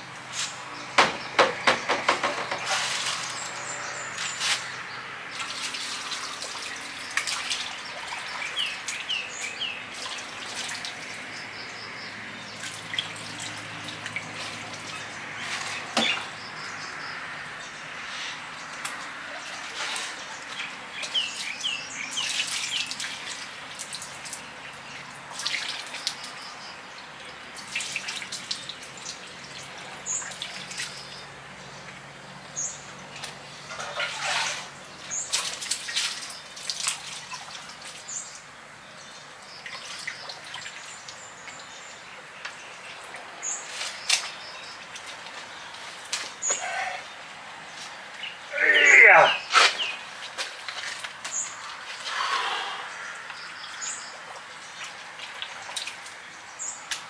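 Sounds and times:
small birds chirping: 0:00.0 - 0:57.0
knocks and splashy clatter: 0:01.0 - 0:04.6, 0:05.3 - 0:11.2, 0:12.6 - 0:16.4, 0:18.7 - 0:24.5, 0:25.2 - 0:26.5, 0:27.5 - 0:31.2, 0:33.1 - 0:38.1, 0:54.1 - 0:56.2.

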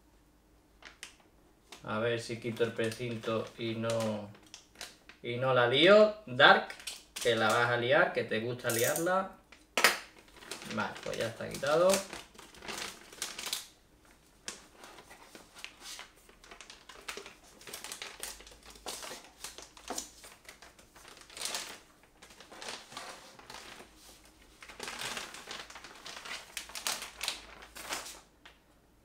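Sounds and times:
cardboard and plastic crinkling: 0:00.8 - 0:05.2, 0:10.1 - 0:28.6.

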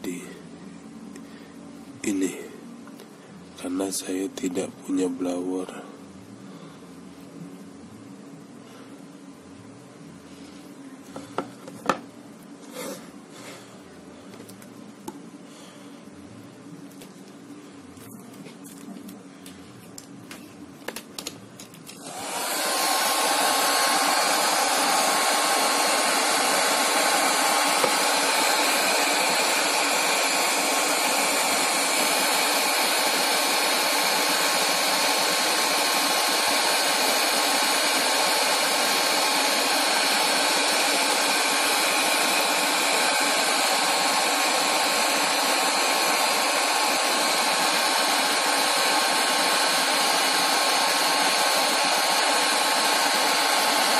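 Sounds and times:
hair dryer blowing with motor whine: 0:11.1 - 0:12.1, 0:21.8 - 0:53.9.

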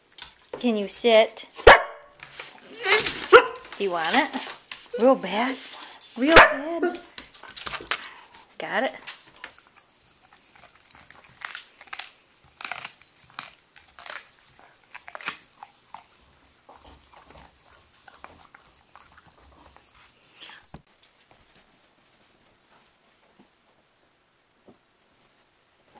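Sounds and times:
dog chewing a bone: 0:00.0 - 0:00.7, 0:09.0 - 0:20.8.

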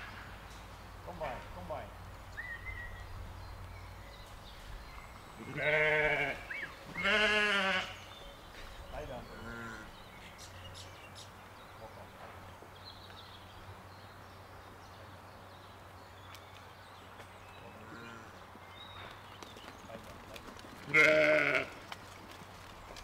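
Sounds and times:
sheep bleating: 0:05.4 - 0:08.0, 0:20.8 - 0:21.8.

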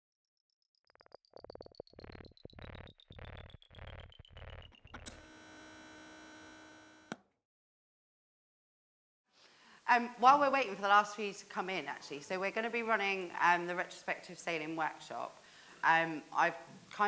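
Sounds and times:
buzzy synth pulses: 0:01.0 - 0:07.1.

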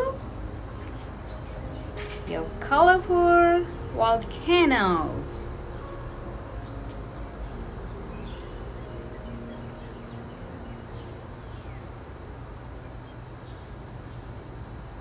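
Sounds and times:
low background rumble: 0:00.0 - 0:15.0
small birds chirping: 0:05.2 - 0:15.0.

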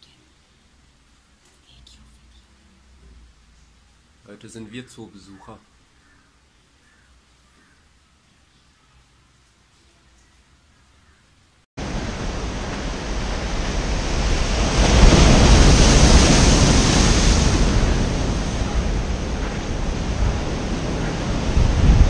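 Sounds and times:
sea surf crashing on rocks: 0:11.8 - 0:22.0
wind rumble on microphone: 0:11.8 - 0:22.0.

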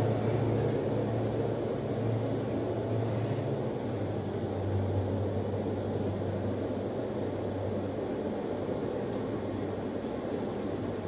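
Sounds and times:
train wheels rumbling on rails: 0:00.0 - 0:06.2
low steady hum: 0:00.0 - 0:11.0.

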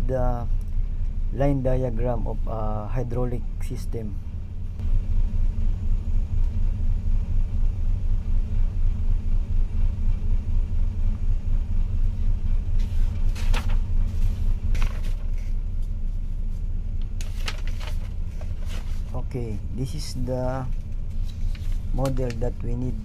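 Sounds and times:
paper page turning: 0:12.8 - 0:19.2, 0:20.6 - 0:22.7.

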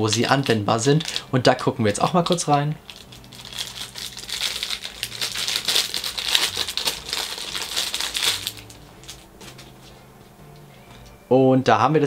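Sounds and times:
packaging crinkling: 0:00.0 - 0:01.3, 0:02.0 - 0:10.0.

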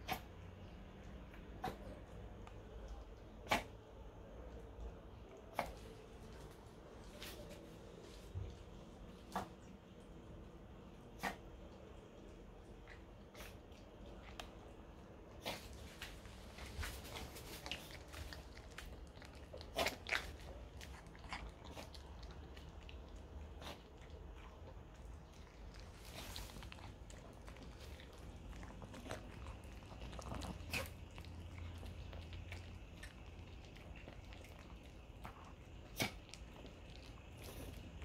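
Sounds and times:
dog chewing hard treat: 0:15.4 - 0:38.0.

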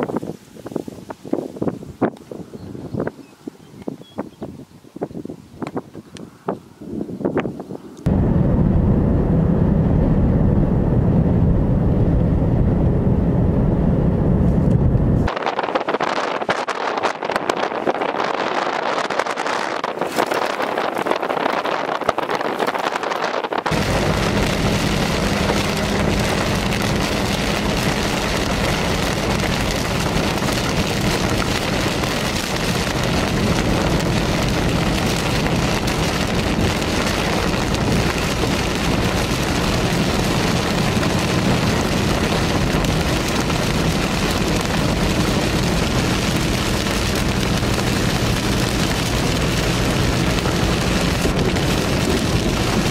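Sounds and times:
low steady hum: 0:08.1 - 0:15.3, 0:23.7 - 0:51.0
heavy rain drumming on car roof: 0:16.7 - 0:52.9.

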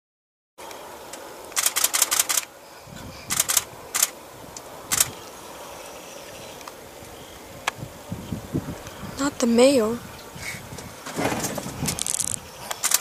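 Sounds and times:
camera shutter clicks: 0:01.5 - 0:02.5, 0:03.3 - 0:04.1, 0:04.9 - 0:05.1, 0:12.0 - 0:13.0.

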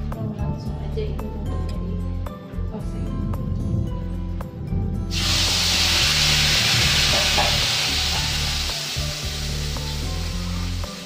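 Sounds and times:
paste sizzling in hot oil: 0:05.1 - 0:11.0.

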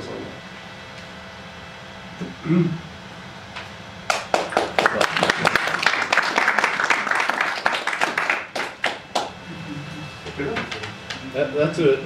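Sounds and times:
audience applauding: 0:04.1 - 0:09.4.

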